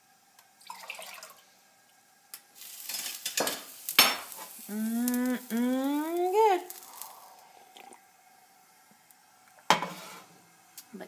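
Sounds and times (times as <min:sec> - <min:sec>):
tea pouring: 0:00.6 - 0:01.6, 0:06.6 - 0:08.6
person humming: 0:04.6 - 0:07.2.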